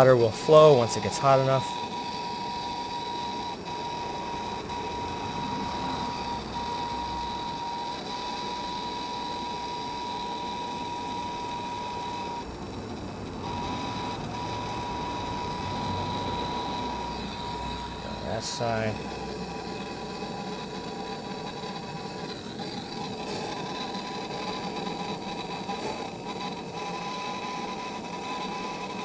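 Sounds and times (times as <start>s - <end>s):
propane torch hissing: 16.9s - 26.7s.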